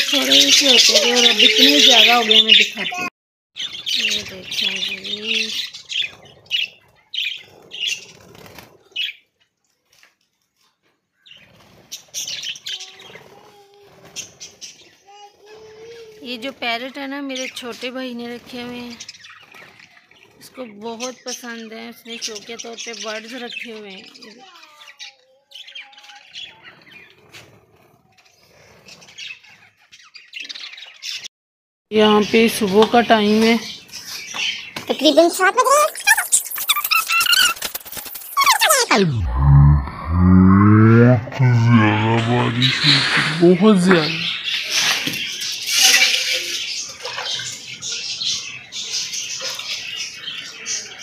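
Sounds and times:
parrots chirping and squawking: 0:00.0 - 0:09.2, 0:35.4 - 0:40.1, 0:42.4 - 0:50.9.

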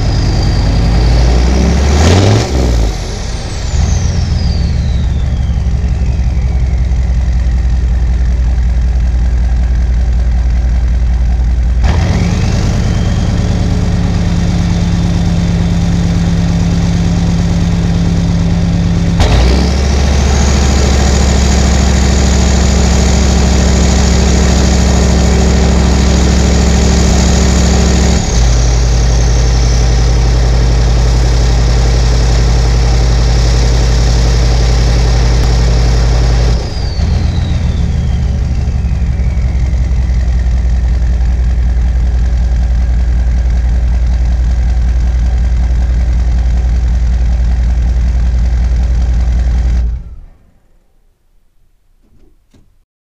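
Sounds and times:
turbo whistle: 0:00.0 - 0:07.6, 0:12.4 - 0:15.9, 0:35.5 - 0:40.5
diesel engine idling: 0:00.0 - 0:50.7.

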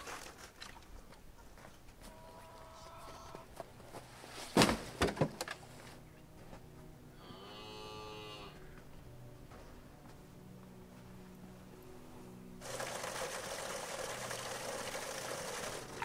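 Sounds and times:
cow mooing: 0:07.2 - 0:08.8.

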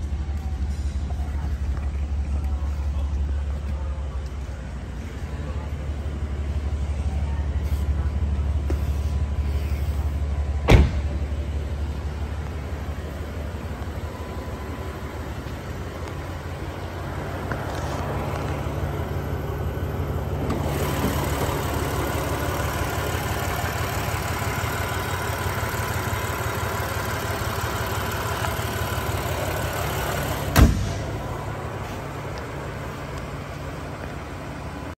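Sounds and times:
car engine idling: 0:00.0 - 0:35.0
car hood slamming shut: 0:10.6 - 0:11.1, 0:30.5 - 0:31.1.

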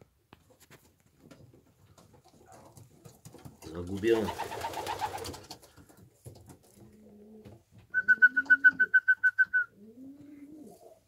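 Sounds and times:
pigeons cooing: 0:06.9 - 0:09.0, 0:09.6 - 0:11.0.

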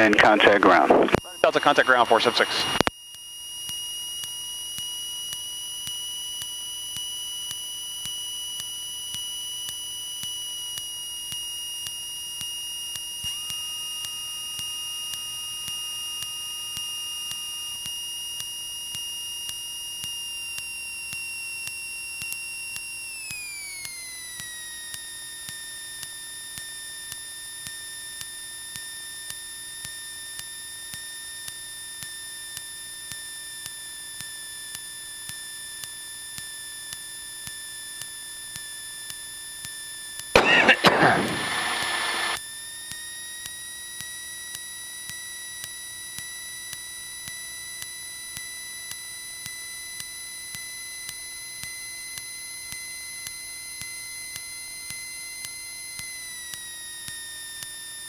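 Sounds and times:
electrical whine in headset: 0:00.0 - 0:27.3, 0:40.4 - 0:42.4.

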